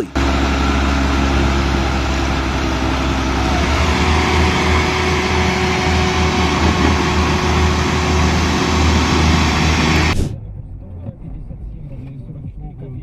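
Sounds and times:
heavy diesel machinery rumbling: 0:00.0 - 0:11.1.

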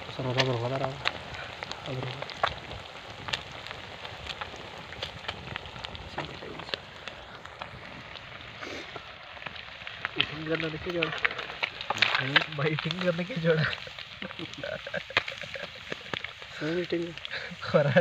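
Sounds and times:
fish deep-frying in oil: 0:00.0 - 0:18.0
oil crackles and pops: 0:00.0 - 0:18.0.

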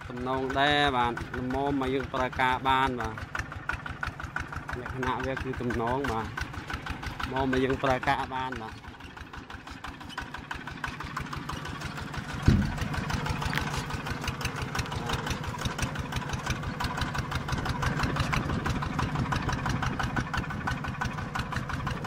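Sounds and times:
small tractor engine running: 0:00.0 - 0:22.0
sharp thump: 0:12.4 - 0:13.1.

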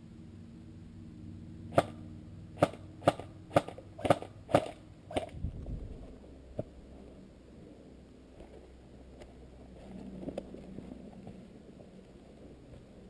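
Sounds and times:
airsoft rifle shots: 0:01.7 - 0:02.0, 0:02.6 - 0:05.4.

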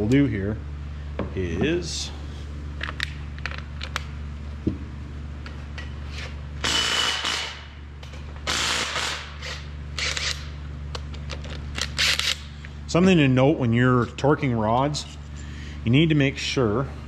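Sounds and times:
steady electrical hum: 0:00.0 - 0:17.0
handheld power tool whine: 0:06.6 - 0:07.7, 0:08.4 - 0:10.5.

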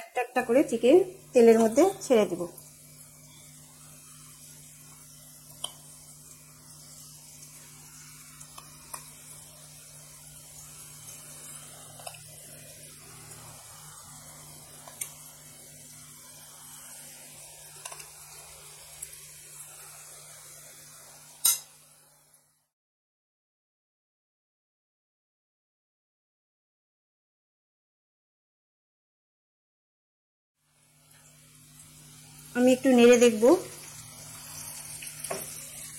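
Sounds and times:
food frying in hot oil: 0:00.0 - 0:22.6, 0:30.6 - 0:35.9.

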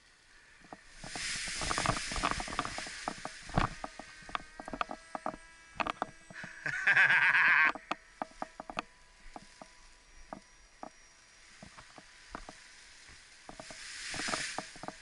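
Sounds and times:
fabric swishing onto grass: 0:00.9 - 0:03.8, 0:12.9 - 0:15.0.

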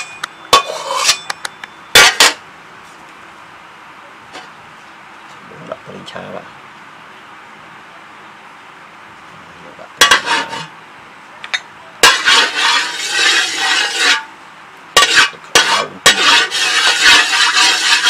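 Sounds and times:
spatula scraping wok: 0:00.0 - 0:01.3, 0:10.0 - 0:10.8, 0:12.0 - 0:14.3, 0:15.0 - 0:18.0
metal spatula clanking on wok: 0:10.0 - 0:10.7, 0:15.0 - 0:18.0.

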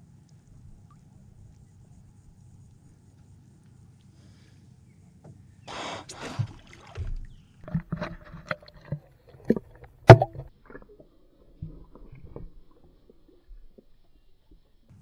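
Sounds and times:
water sloshing and splashing: 0:06.1 - 0:14.0.

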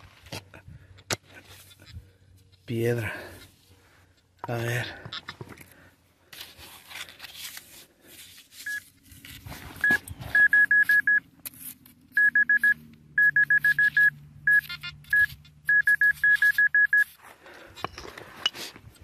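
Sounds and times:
scraping of dry soil and stones: 0:00.0 - 0:12.7, 0:14.5 - 0:19.0
metal detector beeping: 0:08.6 - 0:08.9, 0:09.8 - 0:11.2, 0:12.1 - 0:17.2.

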